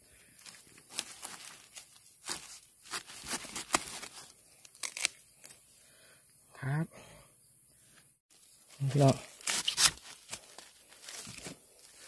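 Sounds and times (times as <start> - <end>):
dry leaves crackling: 0.4 - 5.1, 8.3 - 12.0
knife cutting bamboo shoot: 2.2 - 5.6, 9.1 - 10.5.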